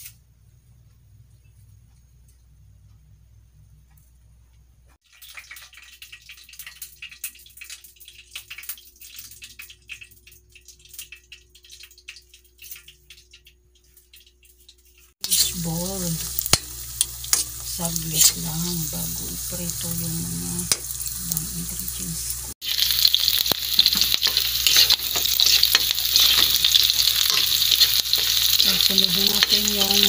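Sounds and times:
light crackling and popping: 4.9s - 30.0s
food frying in hot oil: 5.0s - 30.0s.

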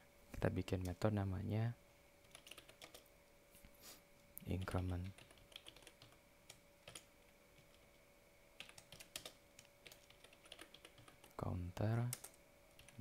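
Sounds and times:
computer keyboard typing: 2.2s - 3.1s, 4.5s - 8.0s, 8.6s - 11.4s, 12.0s - 13.0s.

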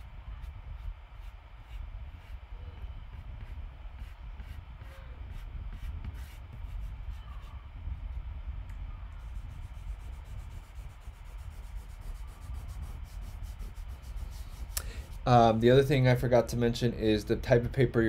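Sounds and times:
charcoal rubbing on paper: 0.0s - 2.4s, 3.1s - 7.5s, 9.2s - 15.5s
low hum: 0.0s - 18.0s.

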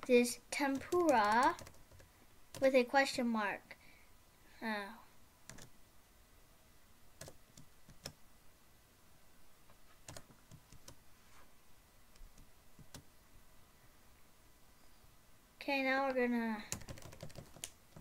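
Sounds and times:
computer keys clicking: 0.7s - 2.7s, 5.5s - 5.7s, 7.2s - 8.2s, 10.0s - 11.0s, 12.1s - 13.1s, 16.7s - 18.0s.

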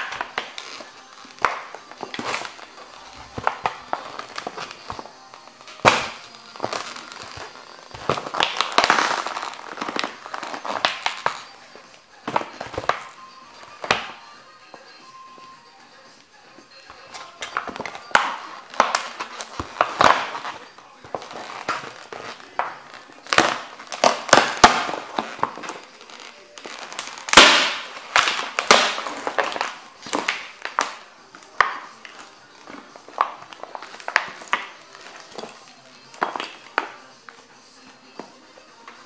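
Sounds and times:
wooden frame cracking: 0.0s - 11.5s, 17.2s - 35.6s
canvas crinkling: 0.0s - 14.1s, 17.0s - 37.4s.

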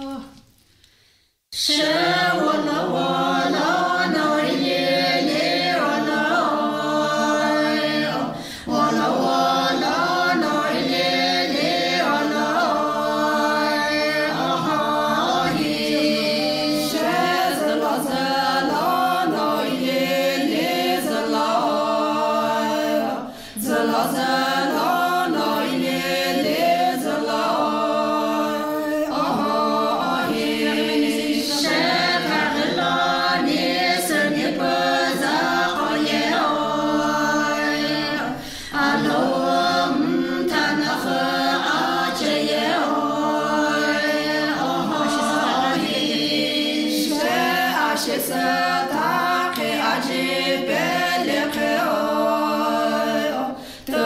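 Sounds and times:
women singing a cappella: 0.0s - 0.4s, 1.5s - 54.0s.

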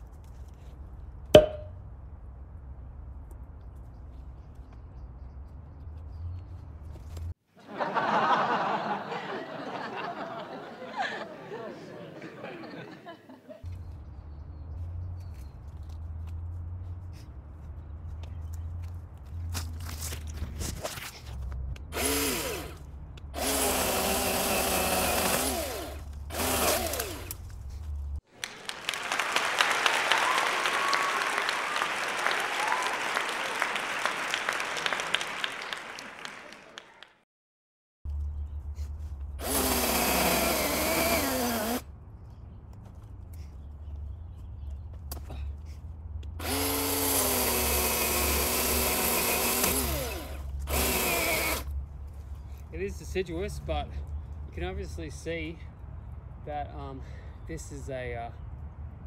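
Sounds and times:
chainsaw cutting wood: 21.9s - 22.8s, 23.4s - 27.4s, 39.4s - 41.8s, 46.4s - 51.7s
crowd applauding: 28.3s - 37.2s.

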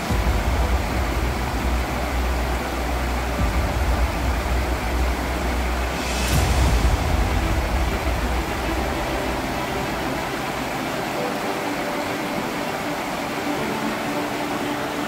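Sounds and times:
ambient music with airy hiss: 0.0s - 15.0s.

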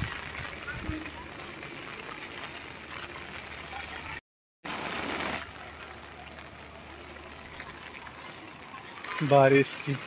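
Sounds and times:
rain falling: 0.0s - 10.0s.

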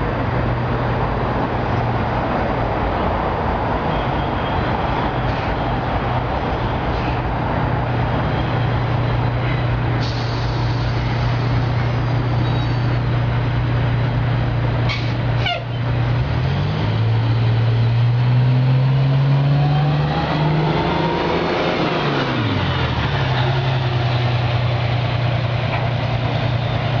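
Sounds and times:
bus diesel engine: 0.0s - 27.0s.

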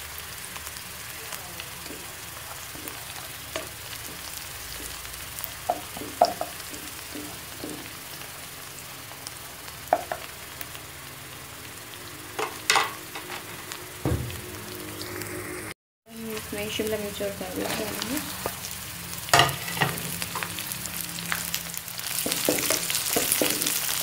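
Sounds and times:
onion sizzling in hot oil: 0.0s - 24.0s
spatula scraping and knocking pan: 5.6s - 8.2s, 22.1s - 24.0s.

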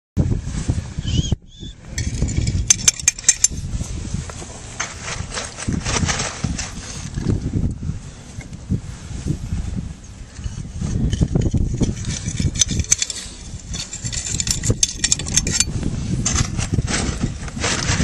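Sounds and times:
wind rumbling on microphone: 0.2s - 18.0s.

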